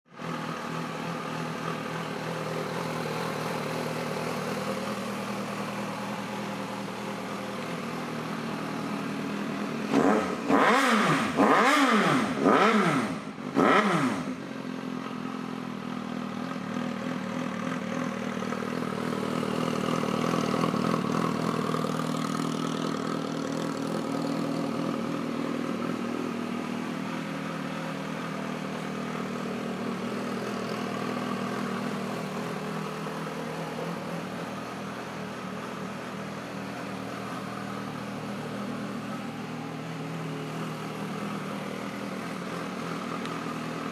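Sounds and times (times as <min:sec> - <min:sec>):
motorcycle engine idling: 0:00.1 - 0:43.9
engine revving: 0:09.7 - 0:14.4.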